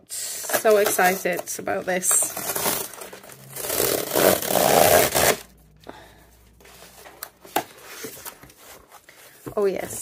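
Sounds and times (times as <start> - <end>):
paper tape tearing off cardboard: 3.6 - 5.4.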